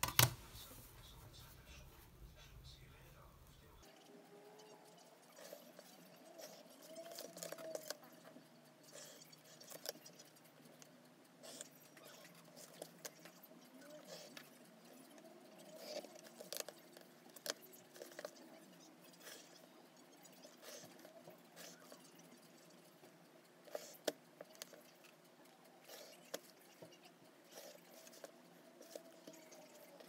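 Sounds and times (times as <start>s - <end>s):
small clicks and taps on desk: 0.0s - 0.4s
pencil scratching on paper: 3.9s - 25.1s.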